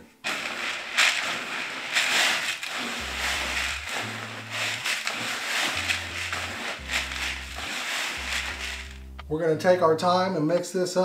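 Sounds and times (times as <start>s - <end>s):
grain rustling in plastic bucket: 0.0s - 9.2s
background music with bass: 0.0s - 10.4s.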